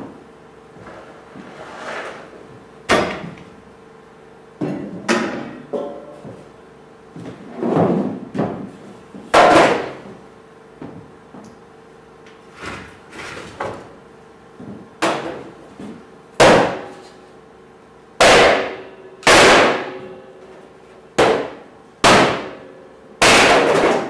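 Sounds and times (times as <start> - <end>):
hatchet chopping wood: 16.4 - 16.9, 18.2 - 19.8, 21.2 - 22.5.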